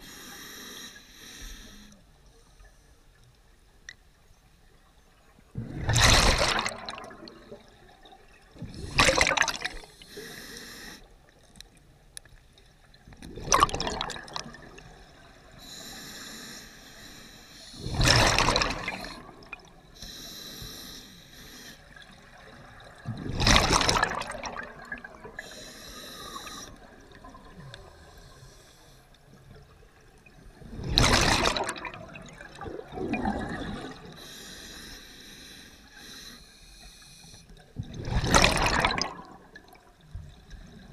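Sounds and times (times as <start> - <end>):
regulator hiss on inhale: 0.0 - 3.0, 9.8 - 11.4, 15.5 - 17.9, 19.9 - 22.0, 25.4 - 27.0, 28.0 - 29.4, 34.1 - 37.6
exhaled bubbles rushing underwater: 5.4 - 10.0, 12.9 - 15.6, 17.8 - 19.9, 21.8 - 28.3, 29.4 - 34.2, 37.7 - 40.9.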